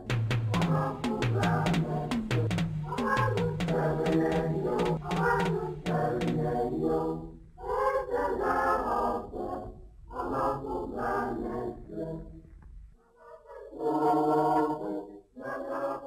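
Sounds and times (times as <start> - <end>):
percussive hits: 0.0 - 6.8
choir singing: 0.0 - 12.4, 13.2 - 16.0.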